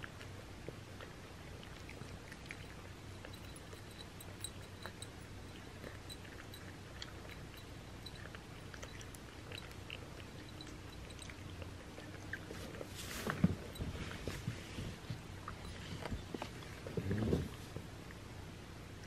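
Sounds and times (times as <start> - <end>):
cat crunching dry kibble: 0.0 - 13.8.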